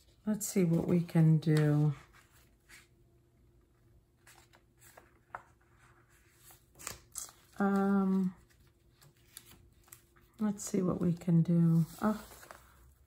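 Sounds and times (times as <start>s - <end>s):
paper rustling: 4.2s - 10.4s, 11.1s - 13.0s.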